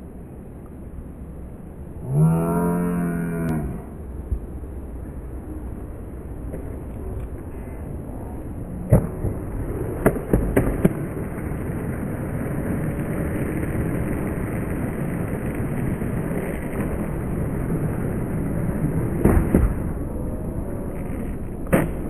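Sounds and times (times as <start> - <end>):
skateboard wheels rolling on asphalt: 0.0 - 2.2, 3.5 - 22.0
skateboard clacks: 5.8 - 7.5, 8.4 - 22.0.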